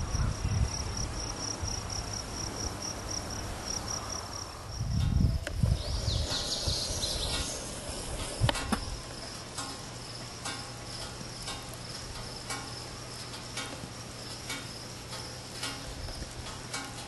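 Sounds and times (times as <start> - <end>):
insects chirring: 0.0 - 17.0
faint ticks: 9.5 - 17.0.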